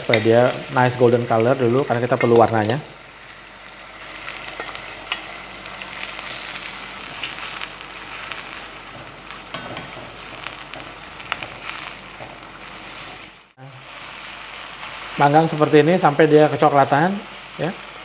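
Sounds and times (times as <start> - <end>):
chicken sizzling in a wok: 0.0 - 18.0.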